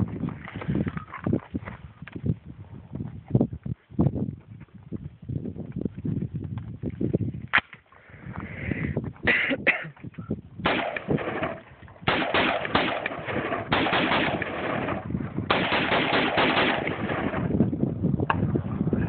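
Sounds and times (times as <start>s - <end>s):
rifle firing rapid shots: 10.6s - 17.5s.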